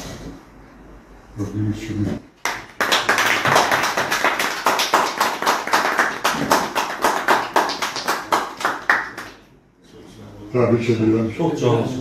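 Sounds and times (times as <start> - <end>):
people applauding: 2.4 - 9.5.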